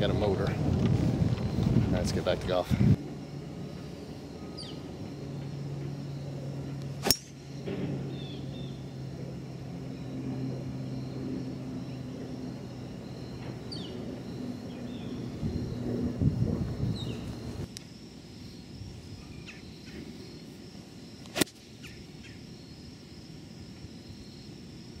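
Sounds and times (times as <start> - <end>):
steady low hum: 0.0 - 25.0
golf club striking ball: 7.0 - 7.4.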